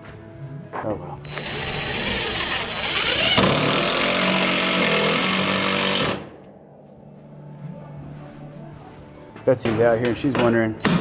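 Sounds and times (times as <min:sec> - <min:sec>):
power drill driving screws: 0:01.3 - 0:06.2.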